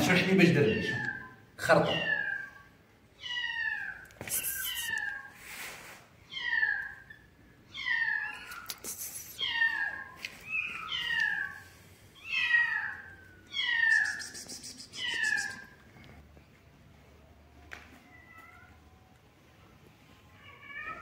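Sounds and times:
kittens meowing: 0.5 - 5.3, 6.3 - 11.6, 12.2 - 15.8.

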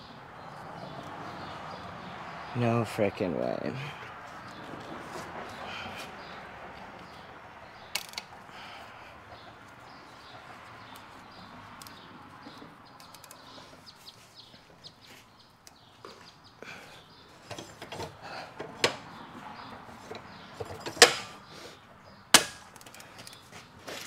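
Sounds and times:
metal tools clanking: 17.4 - 21.5
sharp metal bangs: 20.2 - 21.5, 22.3 - 22.8.

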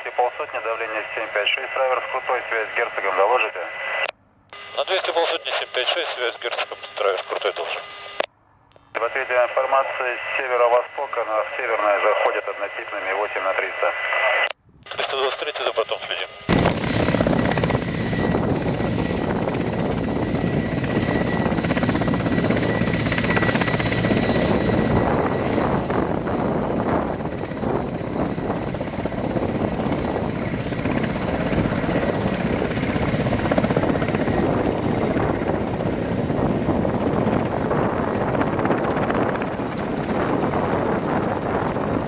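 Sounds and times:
turbine engine whine: 0.0 - 42.0
helicopter rotors turning: 14.3 - 42.0.

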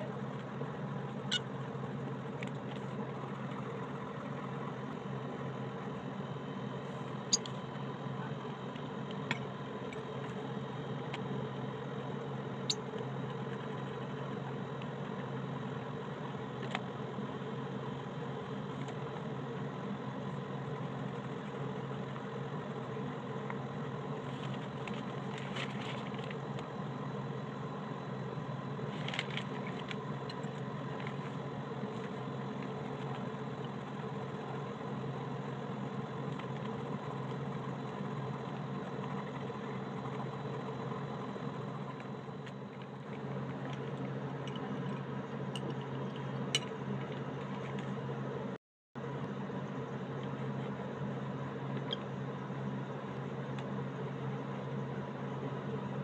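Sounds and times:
machine hum with high tone: 0.0 - 56.0.

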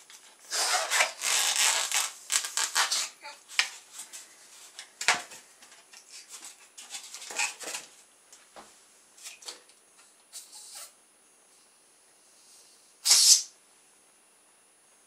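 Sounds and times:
rubbing and handling noises: 0.0 - 8.1.

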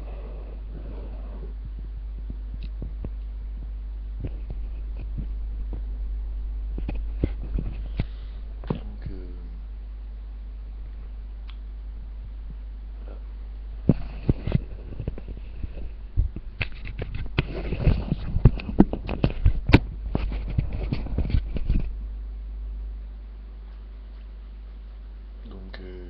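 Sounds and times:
microphone handling knocks and rubbing: 0.0 - 9.2, 12.0 - 22.0
steady low hum: 0.0 - 26.0.

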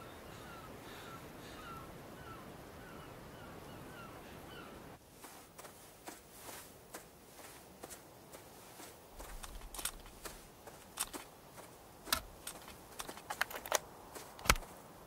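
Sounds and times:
faint outdoor ambience: 0.0 - 15.0
headphones clicking and rustling: 7.8 - 14.9.

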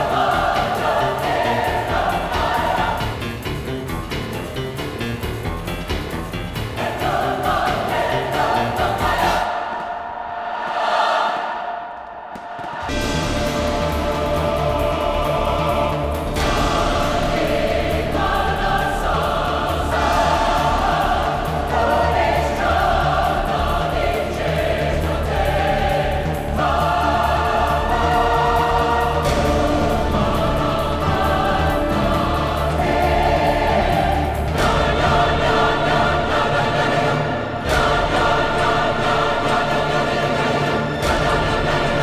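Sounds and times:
choir singing sustained chords: 0.0 - 42.0
steady low bass: 12.9 - 36.6.

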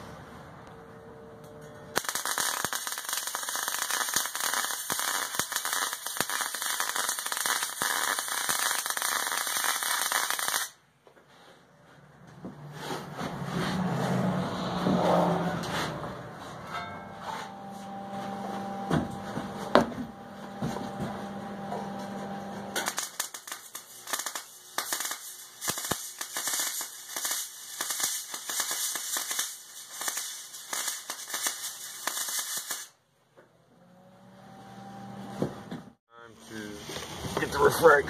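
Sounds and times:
welding arc crackling: 2.0 - 10.8, 22.8 - 33.0.

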